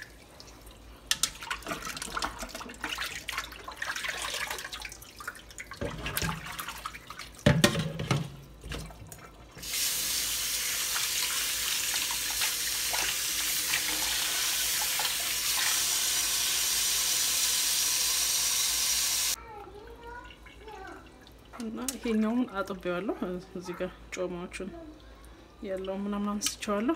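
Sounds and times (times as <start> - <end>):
water splashing in a bowl: 0.0 - 16.0.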